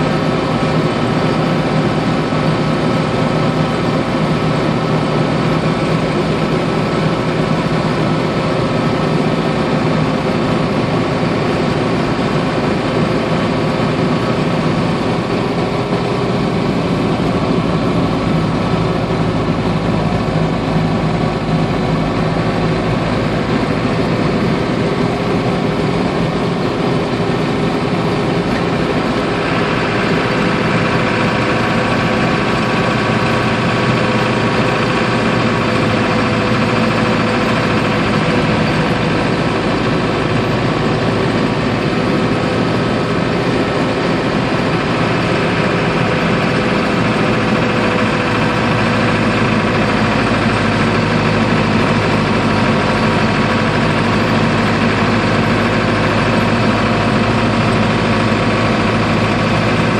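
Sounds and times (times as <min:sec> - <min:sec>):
diesel engine running: 0:00.0 - 0:59.9
road and drivetrain noise: 0:00.0 - 0:59.9.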